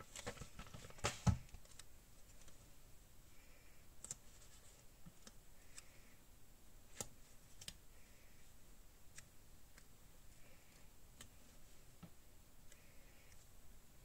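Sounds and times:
paper rustling: 0.0 - 2.6.

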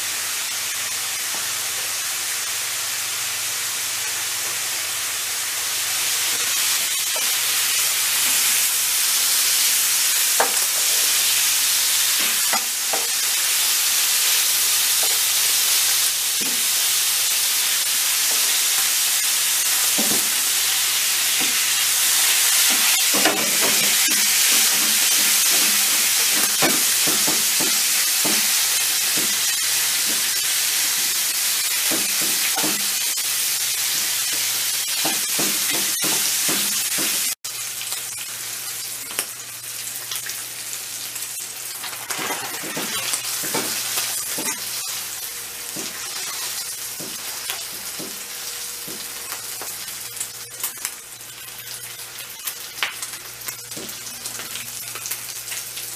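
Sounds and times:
beef sizzling in frying pan: 0.0 - 55.9.

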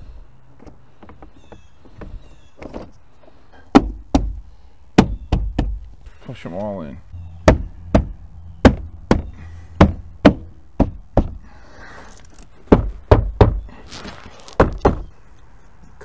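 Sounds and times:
hand knocking plastic panel: 5.0 - 5.8.

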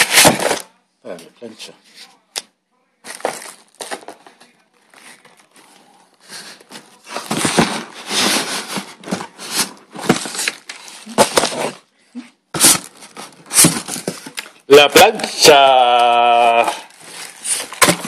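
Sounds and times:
cardboard packaging rustling: 3.0 - 11.8, 12.6 - 18.0.

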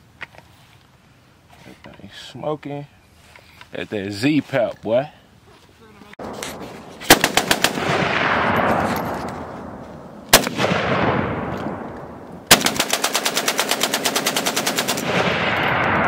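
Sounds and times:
gunshot echo: 6.2 - 12.8, 15.0 - 16.0
pistol firing rapidly: 7.1 - 8.6, 10.3 - 11.3, 12.5 - 16.0.

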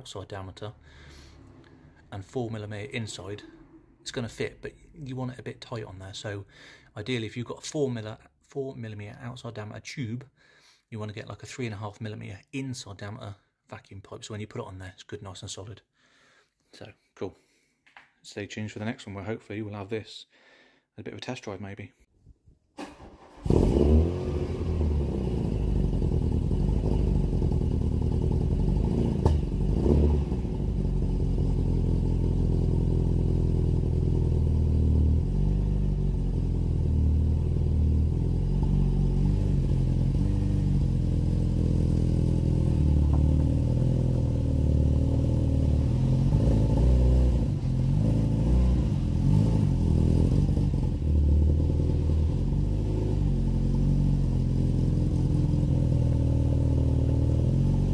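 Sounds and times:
car engine running: 23.7 - 55.8.

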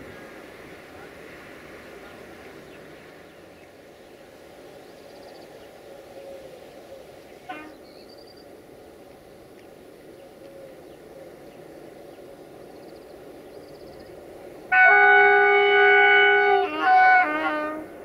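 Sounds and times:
train rumbling: 7.4 - 18.0
locomotive horn blasts: 7.5 - 7.8, 14.7 - 18.0.

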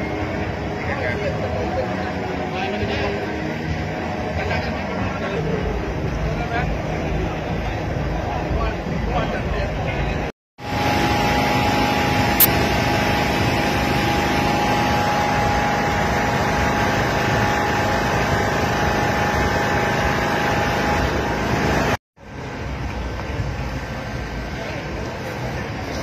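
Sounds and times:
outdoor background rumble: 0.0 - 26.0.

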